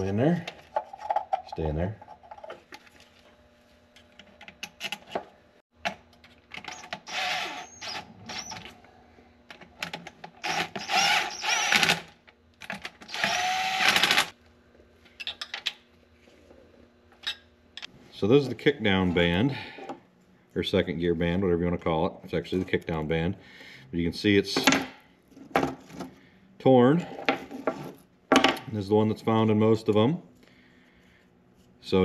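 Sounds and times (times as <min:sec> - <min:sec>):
cordless drill running: 0:07.0 - 0:08.5, 0:10.4 - 0:12.0, 0:13.1 - 0:14.3.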